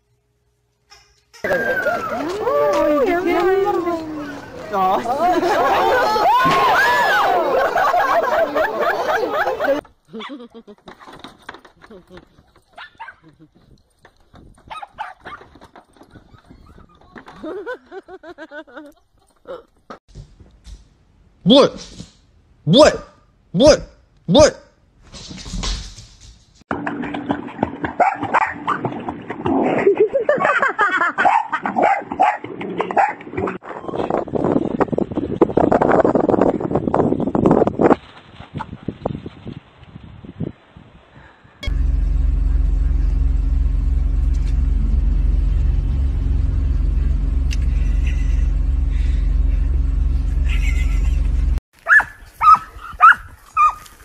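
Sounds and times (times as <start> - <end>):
dog barking and yipping: 12.6 - 13.2, 14.7 - 15.6, 28.0 - 28.8, 31.2 - 32.4, 33.0 - 33.2, 51.8 - 53.9
car cabin rumble: 41.6 - 51.6.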